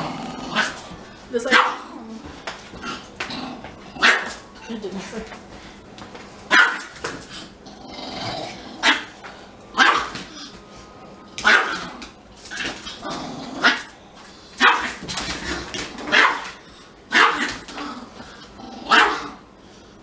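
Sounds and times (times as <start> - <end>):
small dog barking in sharp yaps: 6.5 - 6.9.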